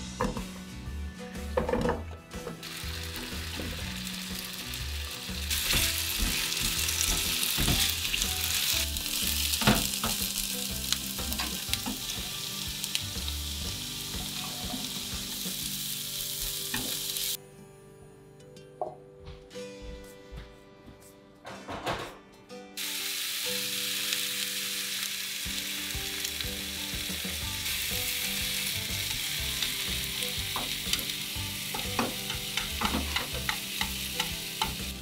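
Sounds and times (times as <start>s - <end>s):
potatoes sizzling in a frying pan: 2.6s - 17.4s, 22.8s - 35.0s
spatula knocking against a pan: 31.8s - 34.9s.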